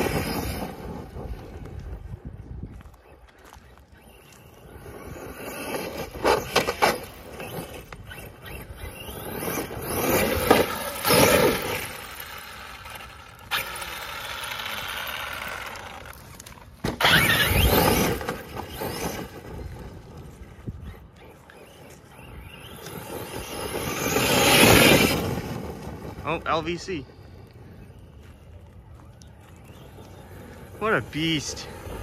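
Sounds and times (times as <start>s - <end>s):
tires scrabbling through dirt: 0.0s - 32.0s
electric motor whining: 4.3s - 26.0s.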